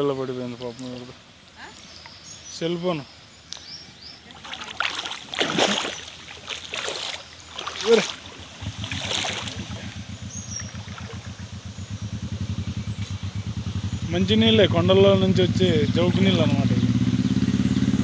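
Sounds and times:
water splashing in a stream: 3.5s - 11.7s
engine throbbing: 7.6s - 18.0s.

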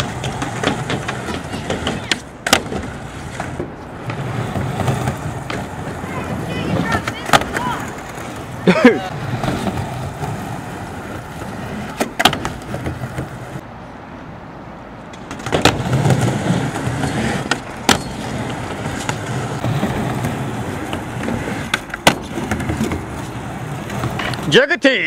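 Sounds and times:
skateboard clacks: 0.0s - 13.6s, 15.1s - 24.6s
skateboard wheels rolling on concrete: 0.0s - 25.0s.

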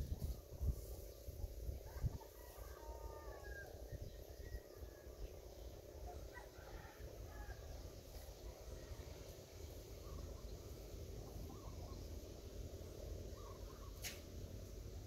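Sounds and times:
faint bird calls: 10.0s - 12.5s, 13.2s - 14.4s
sharp click: 14.0s - 14.3s.

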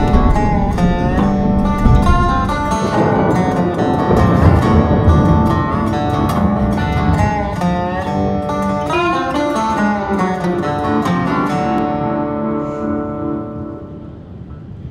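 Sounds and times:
background music with sliding notes: 0.0s - 12.0s.

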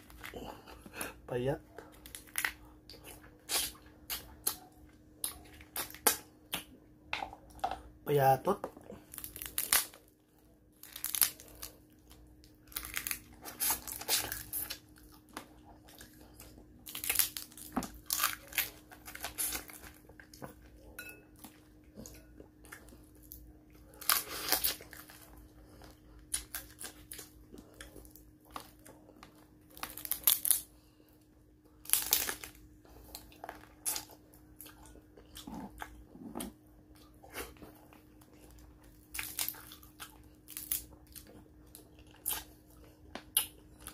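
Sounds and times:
crunching and chewing: 0.0s - 43.9s
crab shell cracking and tearing: 2.0s - 2.6s, 9.1s - 10.1s, 10.8s - 11.7s, 12.4s - 15.5s, 16.8s - 20.0s, 24.0s - 25.2s, 29.7s - 30.7s, 31.8s - 32.6s, 39.0s - 41.3s.

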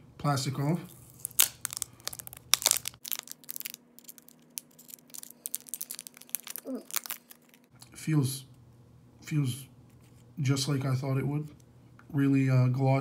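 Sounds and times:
plastic film crinkling: 0.9s - 7.7s.

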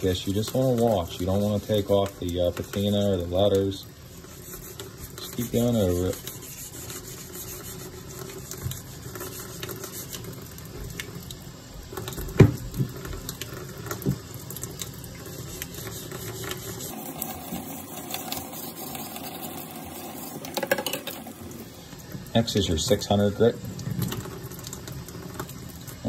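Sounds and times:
wet sandpaper scratching steel blade: 4.4s - 8.2s.

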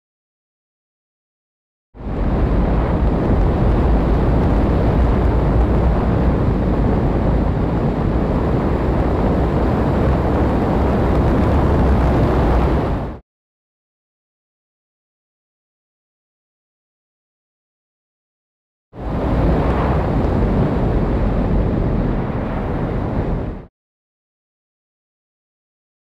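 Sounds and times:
wind rush over microphone: 2.0s - 13.2s, 19.0s - 23.7s
model plane propeller: 2.2s - 13.1s.

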